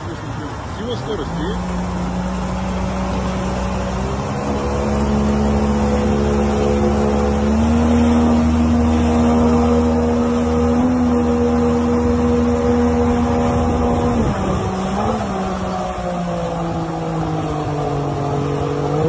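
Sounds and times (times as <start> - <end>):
engine running under load: 0.0 - 19.0
water rushing and splashing: 0.0 - 19.0.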